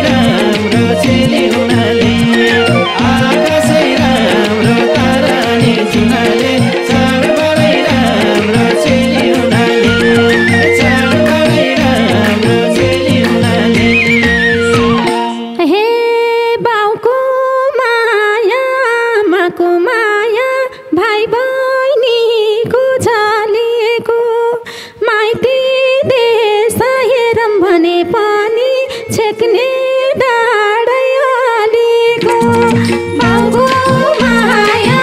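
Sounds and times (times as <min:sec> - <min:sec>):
hand drum and keyboard rhythm: 0:00.0 - 0:15.6, 0:32.1 - 0:35.0
wavering unaccompanied melody: 0:00.0 - 0:16.2.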